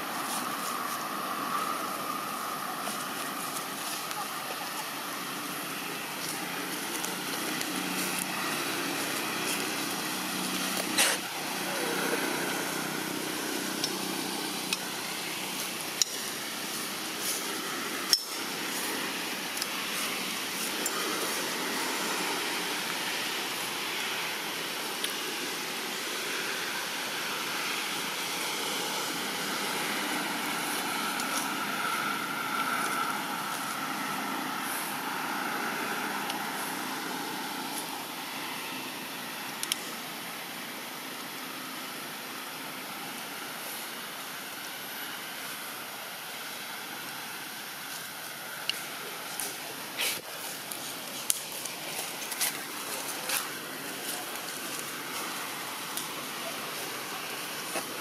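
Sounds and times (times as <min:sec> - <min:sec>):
outdoor hiss: 0:00.0 - 0:58.0.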